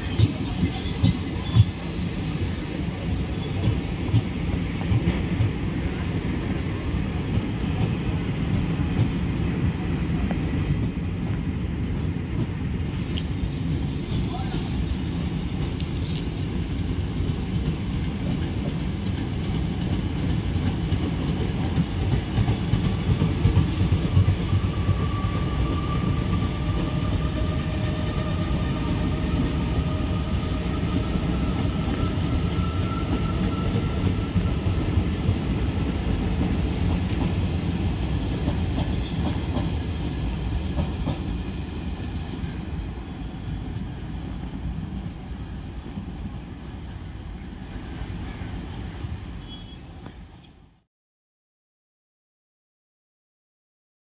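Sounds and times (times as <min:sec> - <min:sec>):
train wheels clattering over rails: 0:00.0 - 0:13.7, 0:15.1 - 0:42.8
faint drawn-out squeal: 0:31.3 - 0:34.5, 0:49.3 - 0:50.0.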